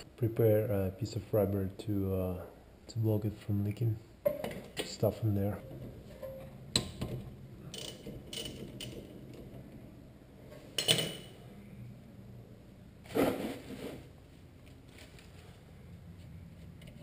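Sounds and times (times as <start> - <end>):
tools clinking and scraping on metal: 5.6 - 9.5, 10.8 - 11.4.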